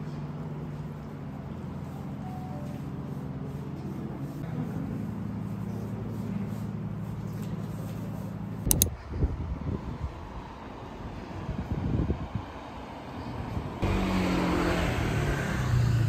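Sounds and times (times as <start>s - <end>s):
vehicle engine hum: 0.0s - 16.0s
sharp double click: 8.7s - 8.9s.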